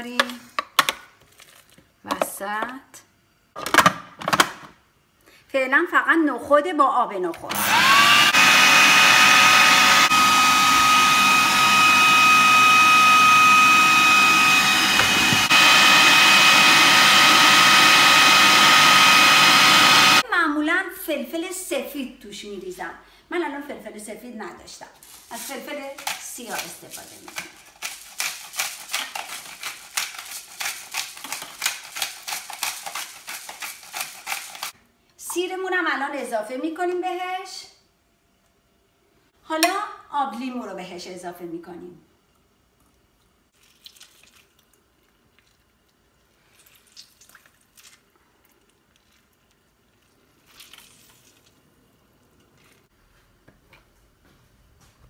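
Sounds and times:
food processor whining: 7.5 - 20.2
pepper mill grinding: 25.0 - 34.8.

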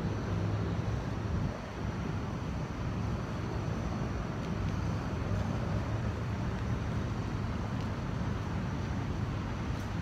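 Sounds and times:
low outdoor rumble: 0.0 - 10.0.

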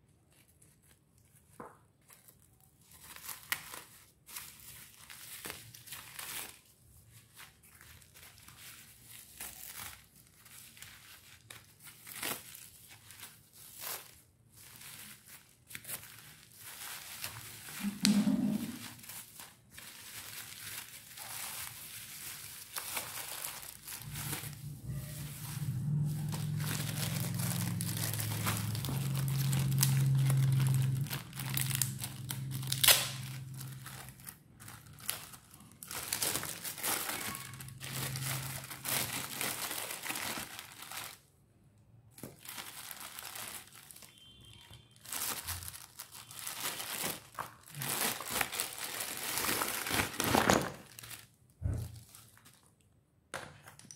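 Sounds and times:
plastic crinkling and crackling: 0.0 - 41.4, 42.0 - 53.9
low steady hum: 23.6 - 35.9.

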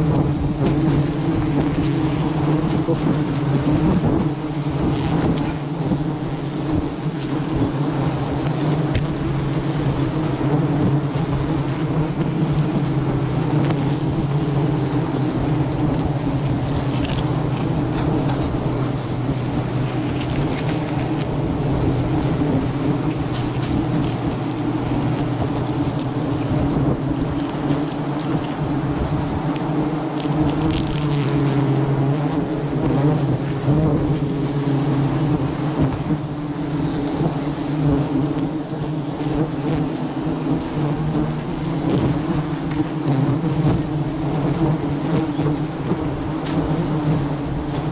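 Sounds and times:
honeybees buzzing: 0.0 - 47.9
wind rumbling on microphone: 0.0 - 47.9.

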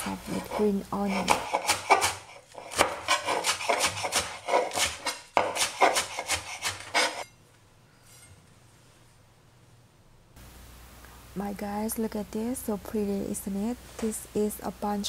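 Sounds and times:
knife chopping on cutting board: 0.4 - 7.2.

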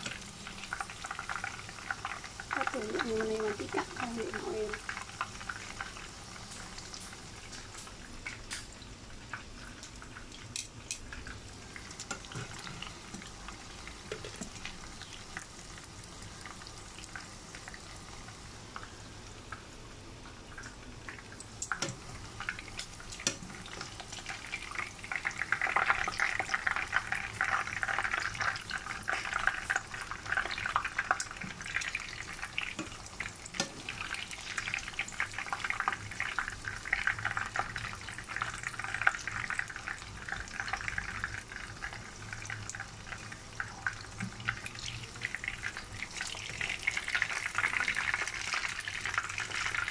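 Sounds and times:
meat deep-frying in oil: 0.0 - 49.9.

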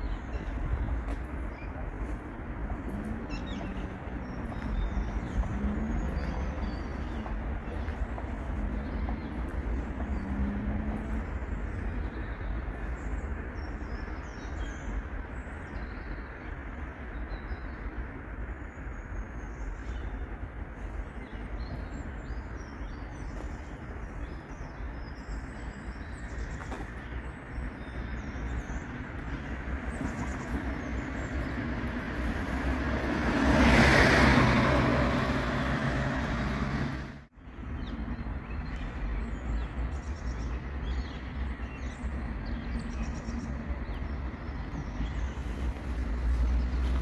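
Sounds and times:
birds chirping: 0.0 - 36.8, 37.5 - 47.0
low traffic rumble: 0.0 - 47.0
wind: 0.0 - 47.0
vehicle passing by: 31.2 - 37.3.

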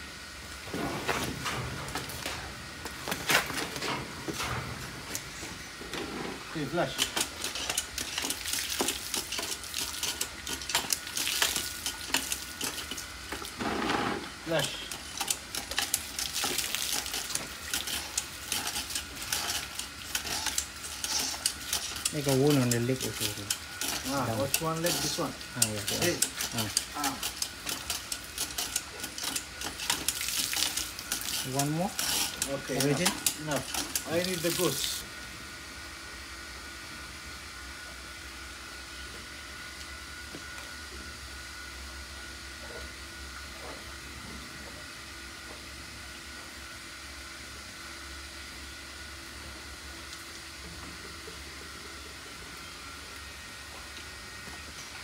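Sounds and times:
hose water spattering on concrete: 6.8 - 35.0.

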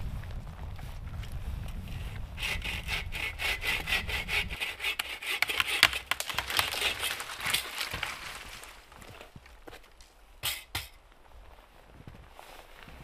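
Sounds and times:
hand saw cutting wood: 2.4 - 7.8.

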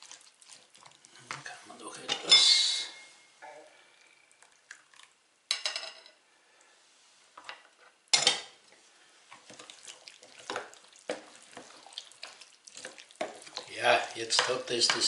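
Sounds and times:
wooden spoon stirring wet mixture: 0.0 - 3.0, 3.6 - 5.4, 6.6 - 15.0
whisk scraping ceramic bowl: 9.5 - 15.0.

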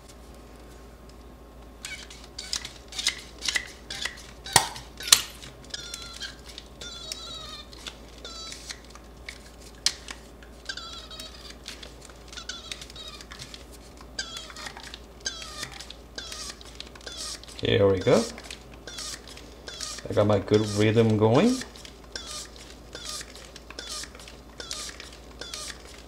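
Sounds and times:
squeaky piston strokes: 1.8 - 5.1, 5.7 - 8.8, 14.2 - 26.0.

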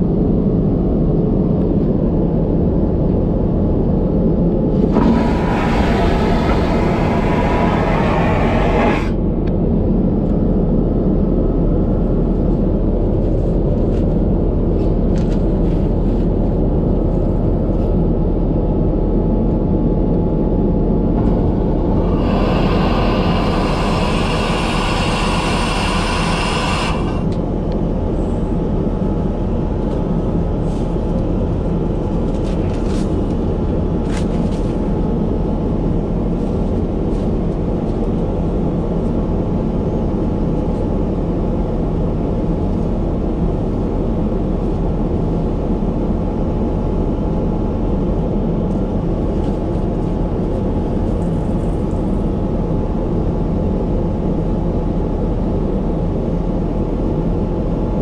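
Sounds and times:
airliner drone in flight: 0.0 - 58.0
loud hiss: 5.0 - 9.2, 21.7 - 27.4.

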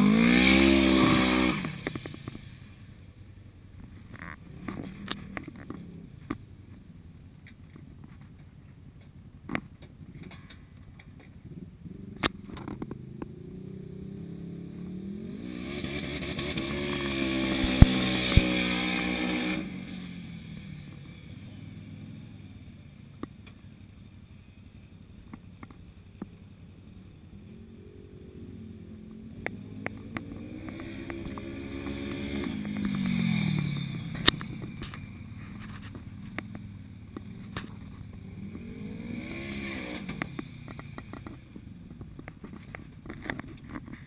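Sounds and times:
utility vehicle engine revving: 0.0 - 3.0, 11.4 - 23.6, 26.2 - 43.9.

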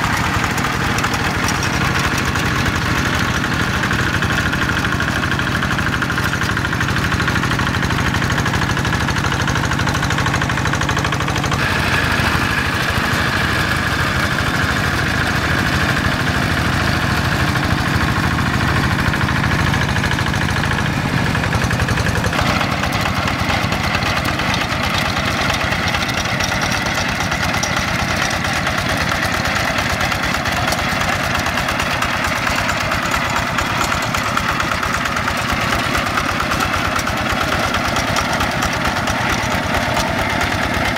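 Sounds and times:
hand tractor diesel engine running: 0.0 - 40.9.

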